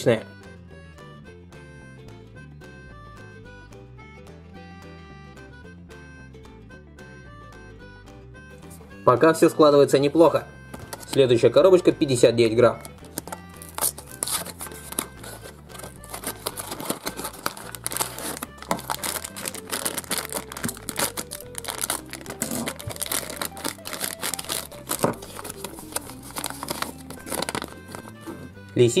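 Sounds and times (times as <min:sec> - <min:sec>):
background music: 0:00.0 - 0:29.0
plastic bag crinkling: 0:12.8 - 0:28.5.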